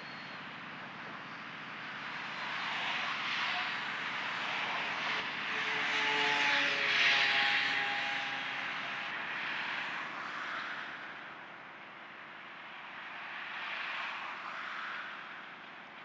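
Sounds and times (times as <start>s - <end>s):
car passing on road: 1.9s - 11.4s, 12.6s - 15.9s.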